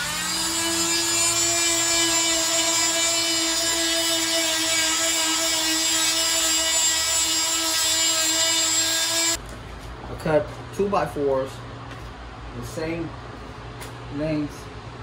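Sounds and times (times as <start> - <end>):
power sander whining: 0.0 - 9.4.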